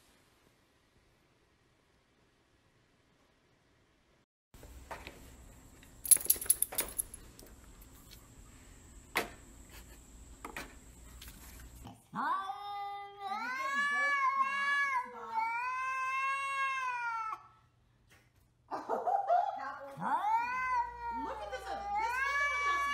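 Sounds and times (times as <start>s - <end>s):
cat yowling: 12.2s - 17.5s, 20.0s - 22.9s.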